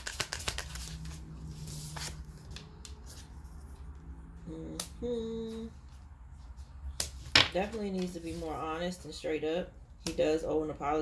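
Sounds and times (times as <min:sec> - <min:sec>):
cards being shuffled: 0:00.0 - 0:03.8.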